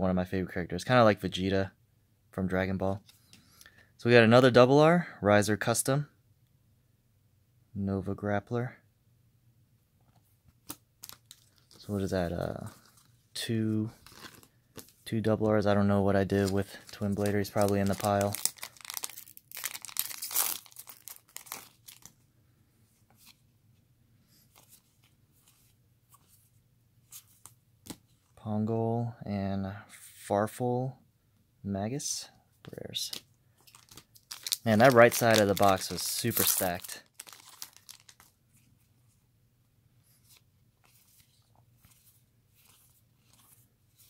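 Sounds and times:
trading cards rustling: 0:10.6 - 0:22.2, 0:32.6 - 0:38.9, 0:40.1 - 0:44.0
foil wrapper crinkling and tearing: 0:11.0 - 0:11.9, 0:16.3 - 0:22.2, 0:33.6 - 0:38.4.

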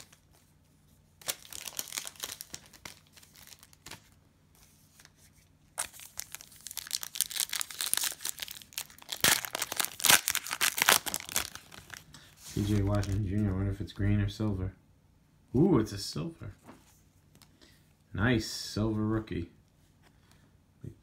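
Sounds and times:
plastic wrapper crinkling: 0:01.2 - 0:04.2, 0:05.7 - 0:13.4.

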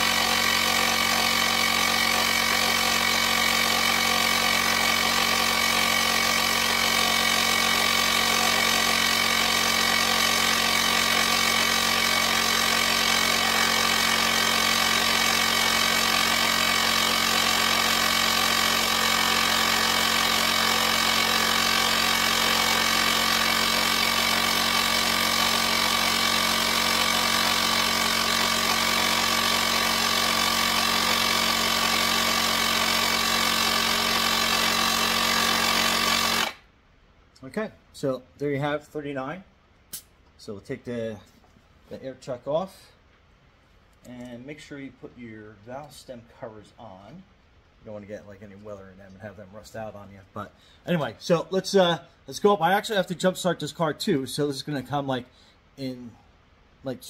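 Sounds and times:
electric air compressor running: 0:00.0 - 0:36.7.

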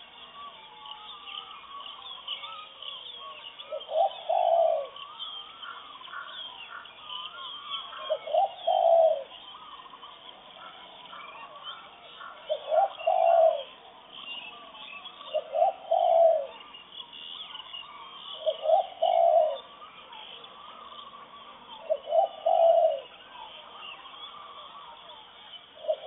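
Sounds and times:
small birds chirping: 0:00.0 - 0:26.0
dove cooing: 0:03.2 - 0:16.7, 0:18.3 - 0:25.2, 0:25.8 - 0:26.0.

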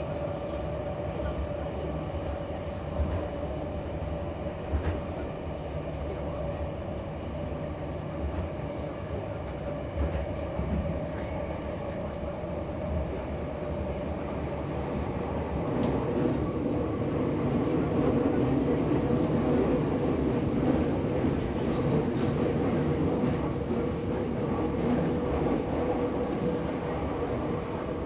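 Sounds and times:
subway wheels rumbling on rail: 0:00.0 - 0:28.0.

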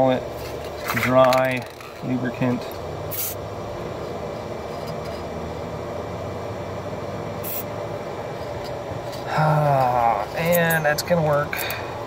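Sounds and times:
aerosol spray can hissing: 0:07.4 - 0:07.7.

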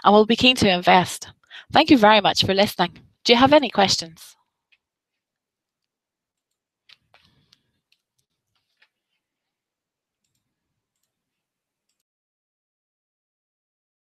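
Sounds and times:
faint clicks: 0:10.2 - 0:11.2.

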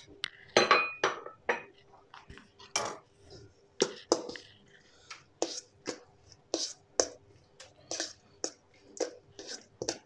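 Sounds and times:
spoon scraping metal bowl: 0:03.8 - 0:04.6, 0:05.4 - 0:10.0.

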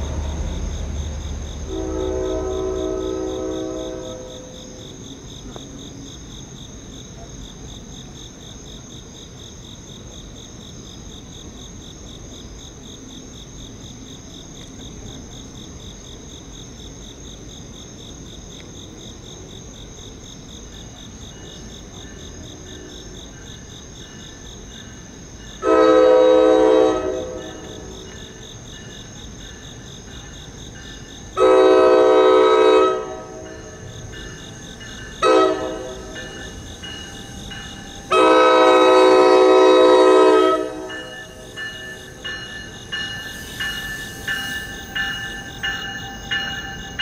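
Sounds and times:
train horn blast: 0:00.0 - 0:04.9, 0:25.6 - 0:27.9, 0:31.4 - 0:33.8, 0:35.2 - 0:42.2
night insects chirping: 0:00.0 - 0:47.0.

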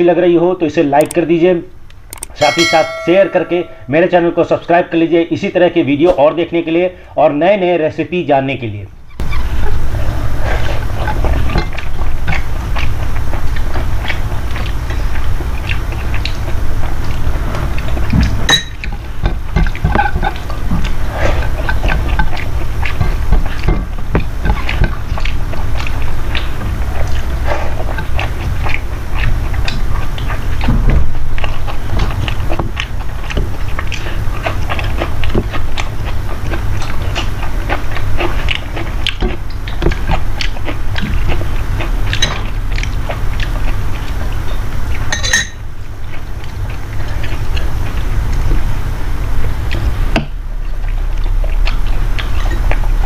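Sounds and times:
steady low hum: 0:00.7 - 0:53.0
person chewing: 0:09.6 - 0:45.3, 0:46.0 - 0:48.6, 0:50.7 - 0:53.0.

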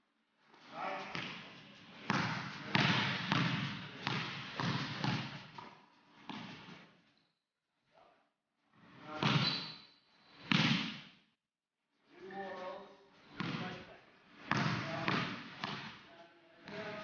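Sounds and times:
basketball bouncing on hardwood floor: 0:02.1 - 0:05.7, 0:14.5 - 0:15.9.

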